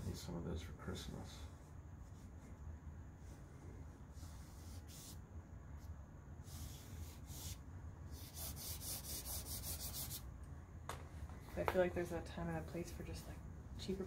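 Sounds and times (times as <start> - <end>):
low steady hum: 0.0 - 14.0
pastel stick scratching on paper: 4.1 - 5.2, 5.8 - 10.2.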